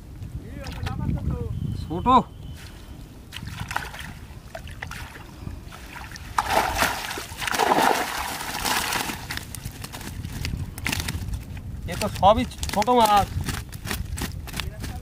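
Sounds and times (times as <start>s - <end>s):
water splashing off net: 5.9s - 9.4s
fish flapping in net: 6.4s - 11.4s, 12.5s - 15.0s.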